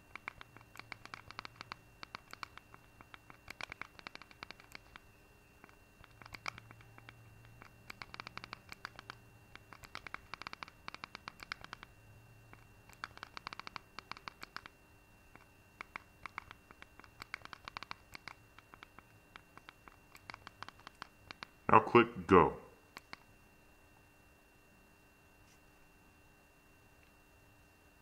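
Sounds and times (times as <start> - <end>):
rapid clicks: 0.0 - 21.6, 22.9 - 23.3
faint steady hum: 0.0 - 28.0.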